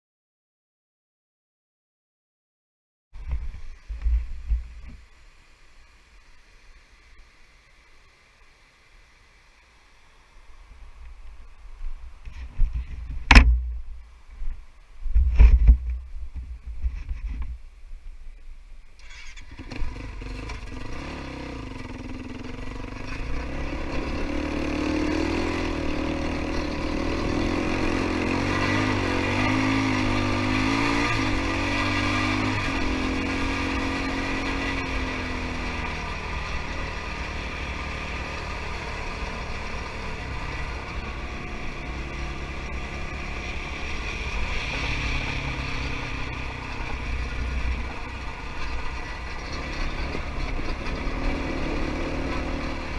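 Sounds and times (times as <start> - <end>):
quad bike engine revving: 19.0 - 52.9.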